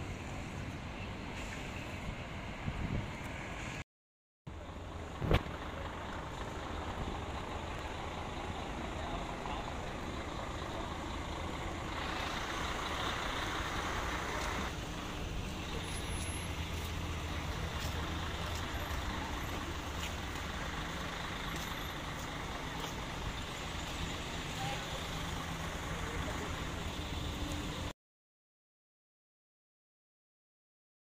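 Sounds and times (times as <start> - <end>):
outdoor background rumble and hiss: 4.5 - 27.9.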